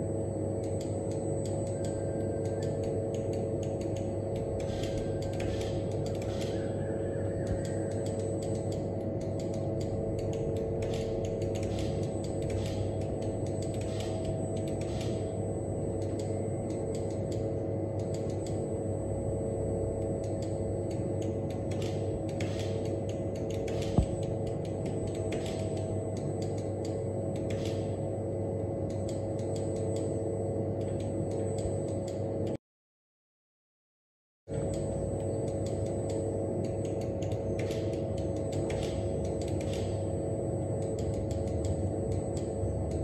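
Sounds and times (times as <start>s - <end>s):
machine humming: 0.0s - 32.6s, 34.5s - 43.0s
quick irregular clicks: 0.6s - 6.7s, 7.4s - 15.4s, 20.3s - 28.0s, 35.6s - 40.1s, 40.8s - 43.0s.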